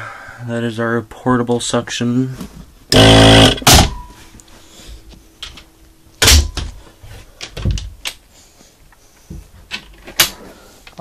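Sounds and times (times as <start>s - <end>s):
suction motor buzzing: 2.9s - 3.9s.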